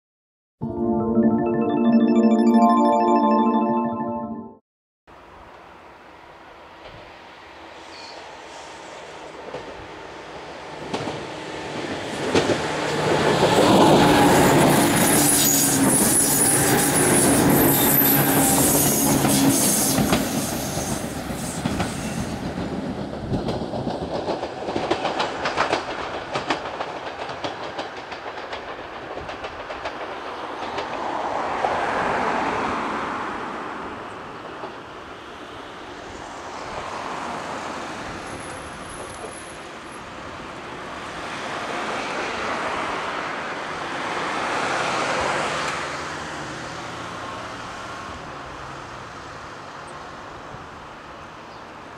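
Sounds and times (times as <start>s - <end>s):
electric train passing: 5.6s - 44.3s
high squeal of wheels on rails: 7.7s - 9.1s, 13.8s - 22.5s, 38.1s - 40.1s
wheels clacking over rail joints: 21.6s - 31.2s.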